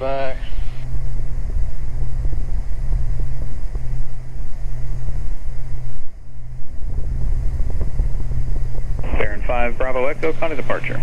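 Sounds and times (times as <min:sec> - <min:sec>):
aircraft cabin engine drone: 0:00.0 - 0:11.0.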